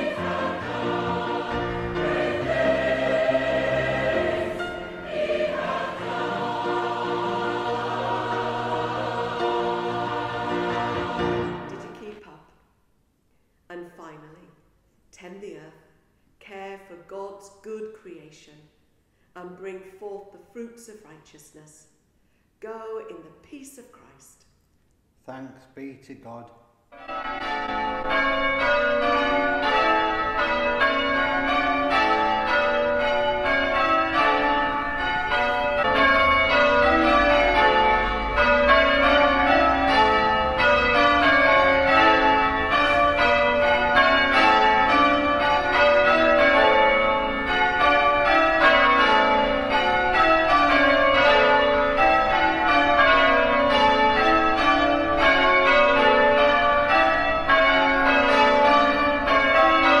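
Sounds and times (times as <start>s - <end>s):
church bells ringing: 0.0s - 12.2s, 26.9s - 60.0s.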